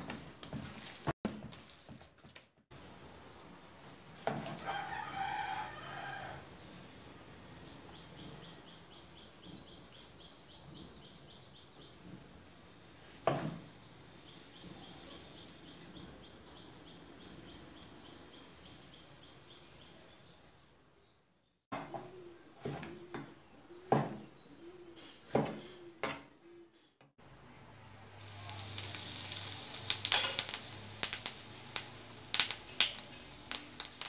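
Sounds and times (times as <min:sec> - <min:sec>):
rooster crowing: 0:04.6 - 0:06.6.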